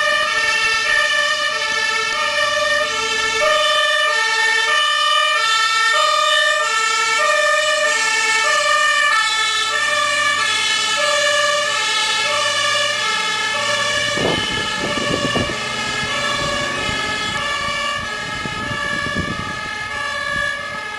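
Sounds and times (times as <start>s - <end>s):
fire engine two-tone siren: 0.0s - 20.9s
low rumbling gusts: 12.5s - 20.9s.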